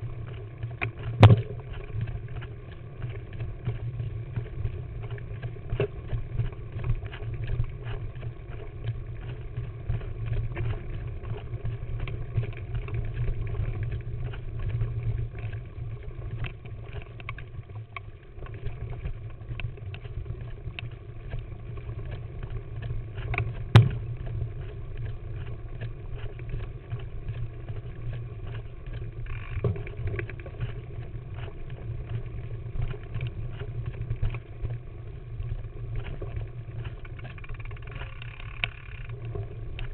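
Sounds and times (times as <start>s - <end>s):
bike rattling and clicking: 18.5s - 39.9s
bike tyres rumbling on dirt: 21.2s - 39.9s.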